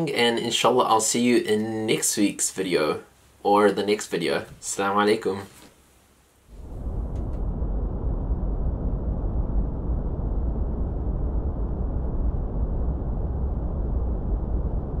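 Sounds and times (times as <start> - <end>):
low rumble: 6.5 - 15.0.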